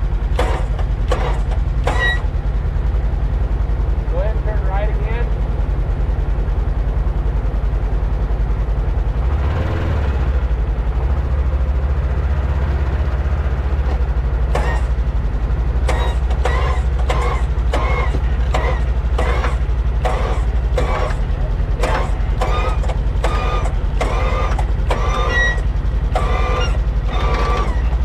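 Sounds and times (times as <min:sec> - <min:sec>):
vehicle engine rumbling: 0:00.0 - 0:28.0.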